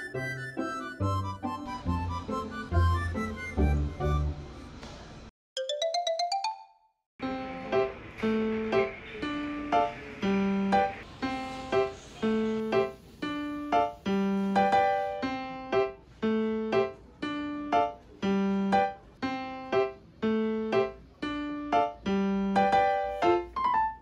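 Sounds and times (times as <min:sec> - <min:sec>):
light keyboard melody: 0:00.0 - 0:04.8, 0:05.6 - 0:24.0.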